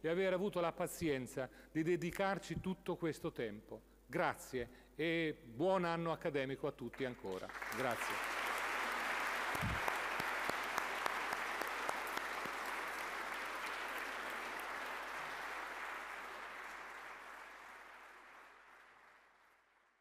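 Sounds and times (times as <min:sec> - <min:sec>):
audience applauding: 0:07.4 - 0:20.0.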